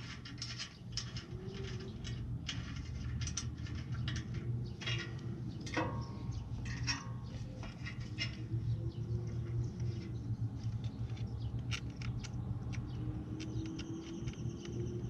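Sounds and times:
ratchet clicking: 10.6 - 15.0.

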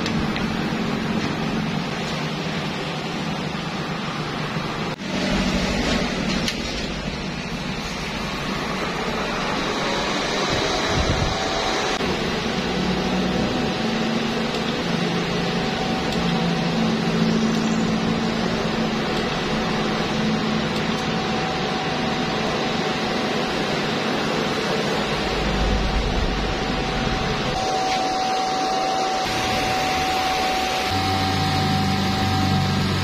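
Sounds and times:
welder cooling fan running: 0.0 - 33.0
faint hum: 14.5 - 33.0.

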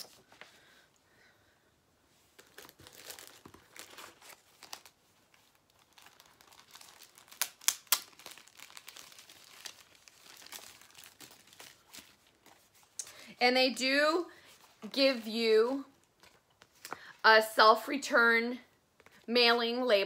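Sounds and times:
packaging crinkling and rustling: 2.2 - 13.0.

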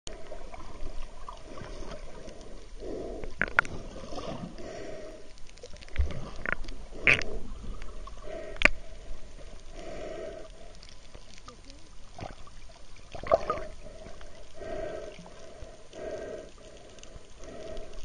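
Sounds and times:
water sloshing and bubbling underwater: 0.1 - 18.0
sharp pops and clicks: 3.2 - 3.8, 5.3 - 7.9, 8.5 - 8.8.

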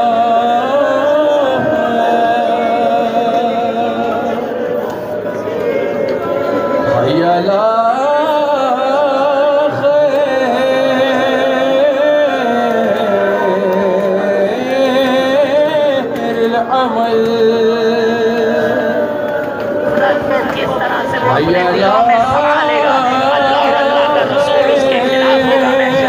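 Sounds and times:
person singing slow melody: 0.0 - 20.4.

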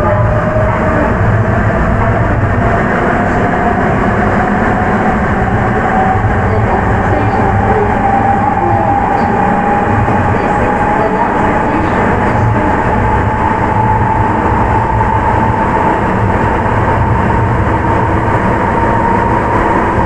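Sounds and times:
train rumble in tunnel: 0.0 - 20.0.

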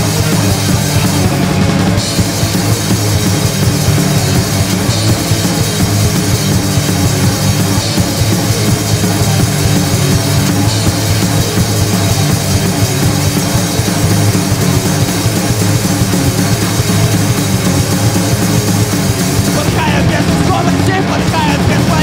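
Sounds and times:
rock music with drums: 0.0 - 22.0.

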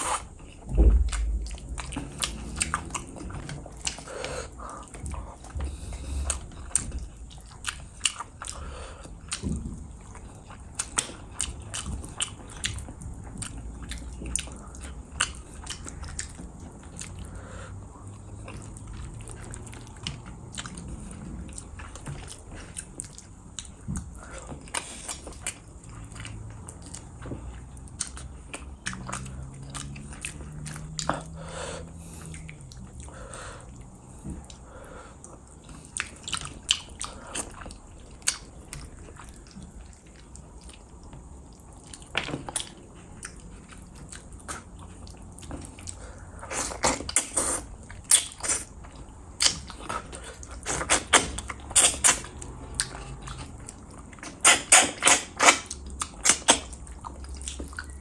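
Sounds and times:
wet chewing and lip-smacking: 0.0 - 58.0.

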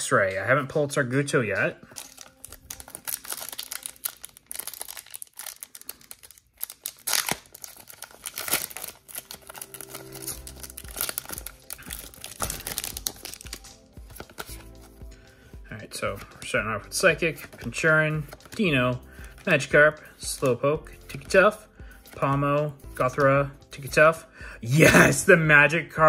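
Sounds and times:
foil pack crinkling and tearing: 1.9 - 14.7.

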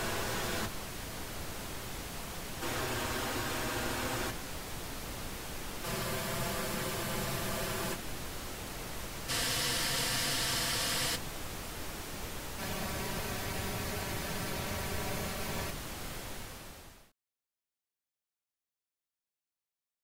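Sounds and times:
pink noise test signal: 0.0 - 17.1.

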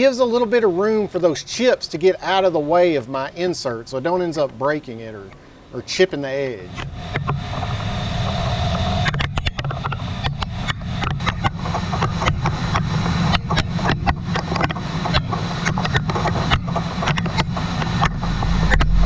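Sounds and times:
lathe machine running: 16.3 - 19.0.

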